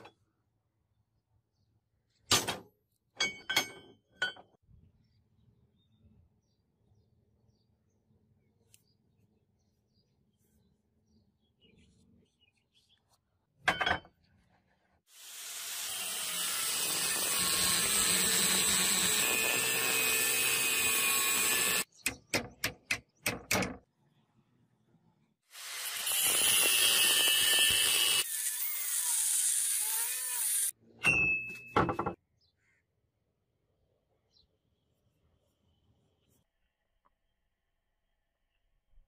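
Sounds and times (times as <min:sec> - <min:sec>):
angle grinder cutting metal: 0:15.2 - 0:21.9, 0:25.5 - 0:30.7.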